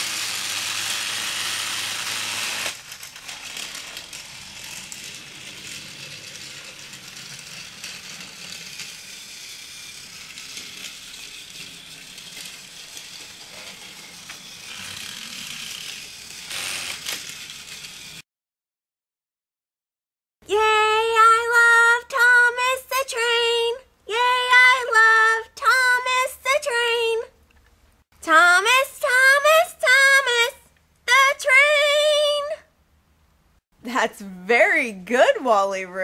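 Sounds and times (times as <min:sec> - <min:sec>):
toy train motor whirring and rattling: 0:00.0 - 0:18.2, 0:21.2 - 0:23.6, 0:24.2 - 0:27.1, 0:28.4 - 0:32.4.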